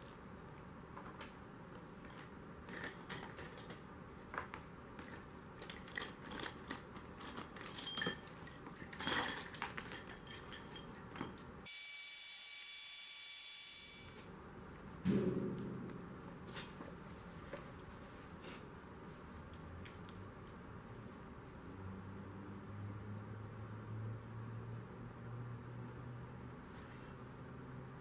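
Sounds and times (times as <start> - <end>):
metal tools clinking: 2.0 - 4.4, 5.6 - 11.7
high-pitched whine: 11.7 - 14.3.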